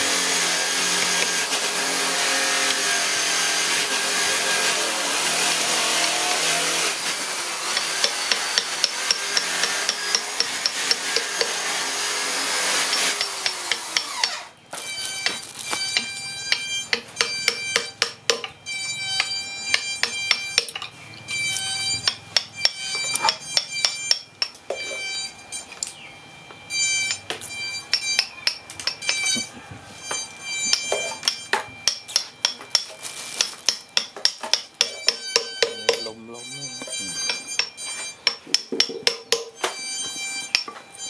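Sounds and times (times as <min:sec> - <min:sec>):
chisel struck into wood: 0:07.7 - 0:11.6, 0:12.8 - 0:14.4, 0:15.2 - 0:18.6, 0:19.2 - 0:20.8, 0:33.4 - 0:36.1, 0:36.8 - 0:40.7.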